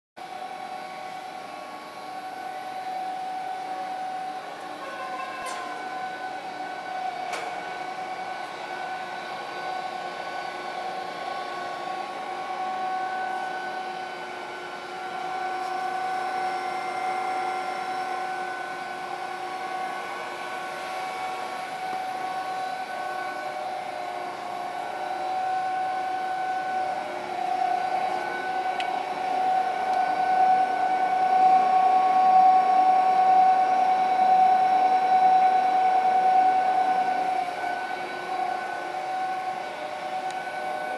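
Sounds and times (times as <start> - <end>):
blender motor whine: 0.2 - 40.9.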